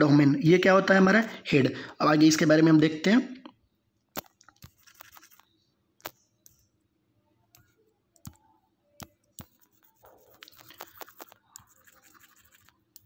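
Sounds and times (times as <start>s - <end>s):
pen scratching on glass: 4.6s - 5.4s, 9.4s - 13.0s
stylus tapping touchscreen: 7.5s - 13.0s.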